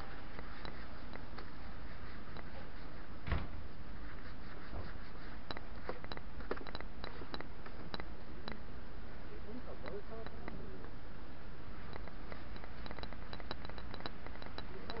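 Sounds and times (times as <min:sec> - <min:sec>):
cloth rubbing on seat: 0:00.0 - 0:06.0.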